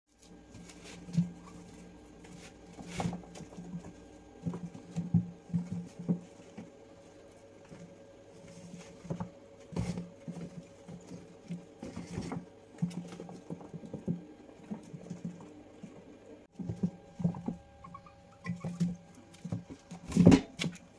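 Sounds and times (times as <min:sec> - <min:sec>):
guinea pigs scurrying: 0:00.1 - 0:20.9
guinea pig calls: 0:17.3 - 0:19.0.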